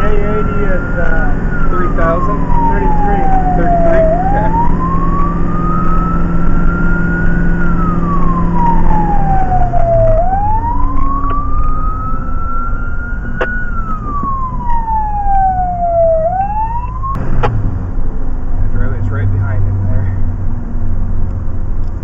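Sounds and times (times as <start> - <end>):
fire engine siren wailing: 0.0 - 17.2
truck engine drone: 0.0 - 22.0.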